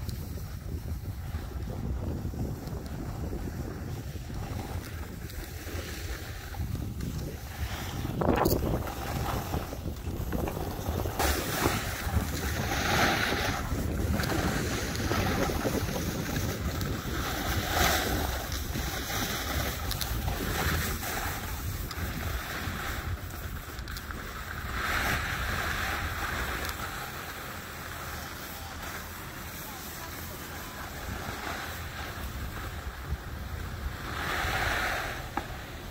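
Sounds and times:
wind over microphone: 0:00.0 - 0:27.4, 0:29.7 - 0:35.9
skis scraping across snow: 0:00.0 - 0:35.9.

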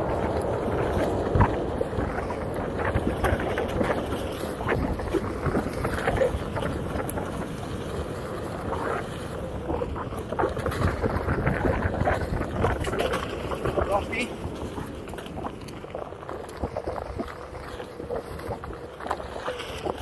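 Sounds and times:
crackles and knocks from bumps: 0:00.0 - 0:20.0
wind over microphone: 0:00.0 - 0:20.0.

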